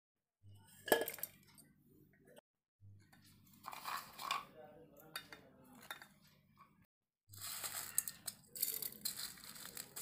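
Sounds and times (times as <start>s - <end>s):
seeds rattling into steel jar: 7.3s - 10.0s.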